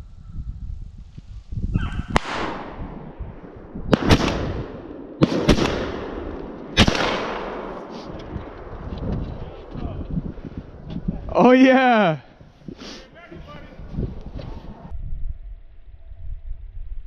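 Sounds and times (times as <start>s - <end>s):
shotgun blasts with echo: 2.1s - 10.0s.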